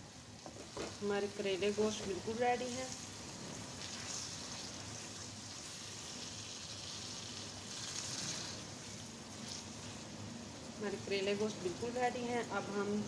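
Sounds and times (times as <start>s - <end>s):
curry sizzling in a wok: 0.0s - 13.0s.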